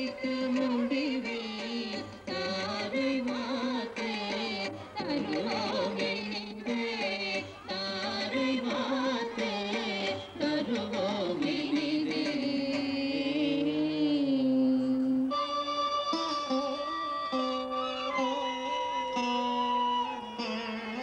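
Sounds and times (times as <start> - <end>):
instrumental accompaniment: 0.0 - 14.0, 14.8 - 21.0
person singing with melodic slides: 0.0 - 15.4.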